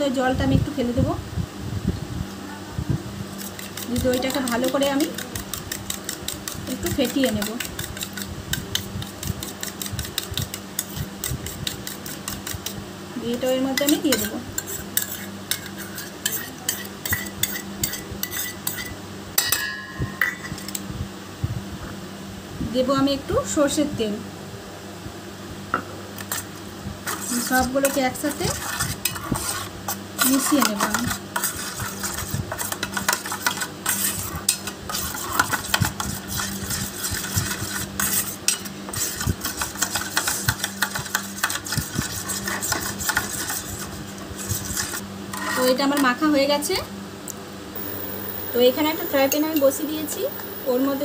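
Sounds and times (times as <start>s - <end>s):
steady low hum: 0.0s - 51.0s
wet scraping in steel bowl: 3.3s - 12.8s, 13.4s - 18.9s, 26.2s - 46.2s
metal spoon clinking on steel bowls: 15.0s - 20.8s, 49.2s - 49.9s.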